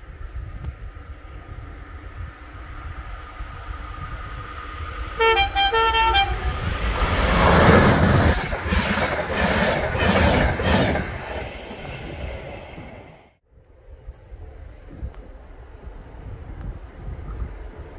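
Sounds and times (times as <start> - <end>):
train passing with loud rush: 0.0 - 17.9
train horn blasts: 5.2 - 6.8.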